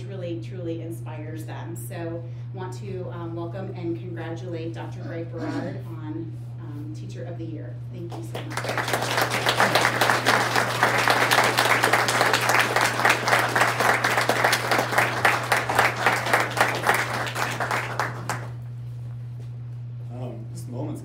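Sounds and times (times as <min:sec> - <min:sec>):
audience applauding: 0:08.4 - 0:18.7.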